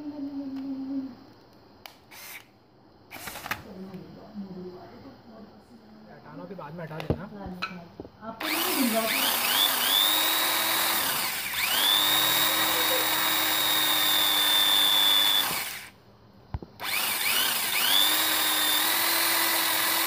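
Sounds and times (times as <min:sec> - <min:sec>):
electric drill boring into wood: 0:02.1 - 0:02.4, 0:08.4 - 0:16.0, 0:16.8 - 0:20.0.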